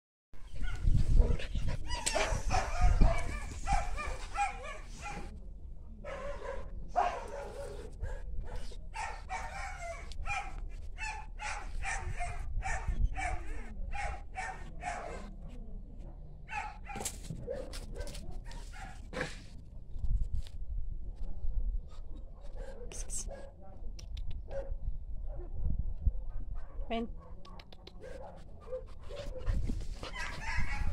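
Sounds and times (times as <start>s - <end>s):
dog barking: 2.1s - 5.3s, 6.1s - 15.3s, 16.5s - 19.0s, 22.4s - 23.7s, 24.5s - 25.5s, 26.3s - 30.9s.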